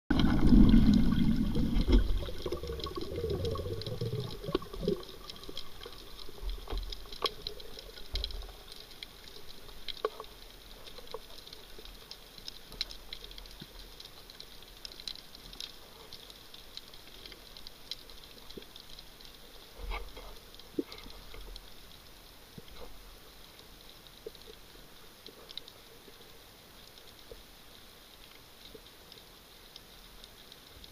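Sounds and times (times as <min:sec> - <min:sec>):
underwater rushing: 0:00.1 - 0:22.0
sharp clicks and crackles: 0:00.1 - 0:30.9.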